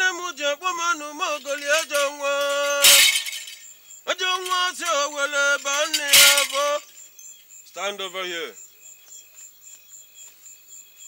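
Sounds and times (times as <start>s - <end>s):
person chanting in sing-song: 0.0s - 3.4s, 4.1s - 6.9s
sharp crash: 1.4s - 3.6s, 5.6s - 6.8s.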